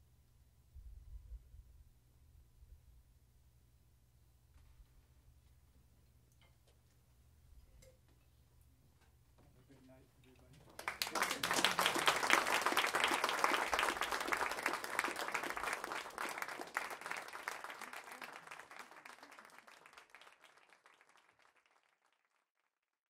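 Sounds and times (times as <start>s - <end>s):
audience applauding: 10.6s - 22.5s.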